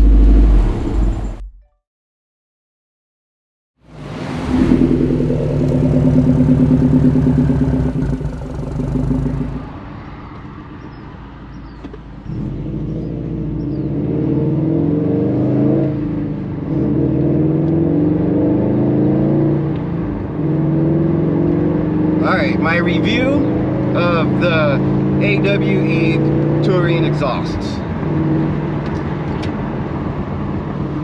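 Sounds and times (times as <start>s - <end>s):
car engine revving: 0.0s - 1.4s, 3.9s - 9.9s.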